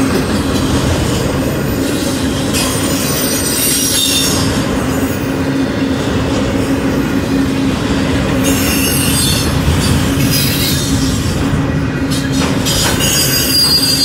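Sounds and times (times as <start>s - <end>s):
freight train rumbling past: 0.0s - 14.0s
metallic wheel squeal: 2.5s - 4.5s, 8.4s - 11.0s, 12.7s - 14.0s.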